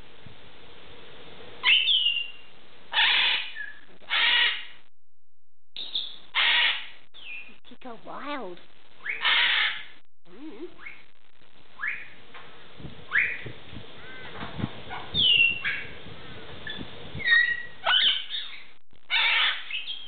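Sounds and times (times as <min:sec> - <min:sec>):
macaw whistles and squawks: 0:01.6 - 0:04.7, 0:05.8 - 0:07.5, 0:09.0 - 0:09.9, 0:13.1 - 0:14.2, 0:14.9 - 0:16.0, 0:16.7 - 0:20.0.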